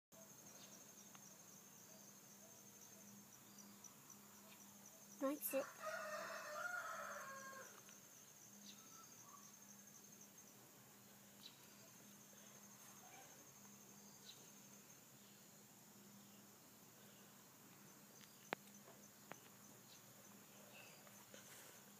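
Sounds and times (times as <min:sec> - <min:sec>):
high-pitched insect trill: 0:00.3 - 0:17.2.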